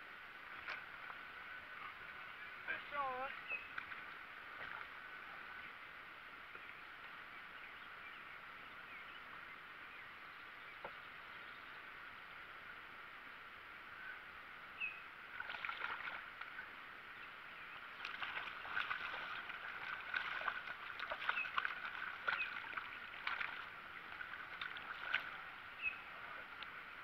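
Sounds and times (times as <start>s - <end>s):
fish splashing at water surface: 15.4s - 16.3s, 18.0s - 25.4s.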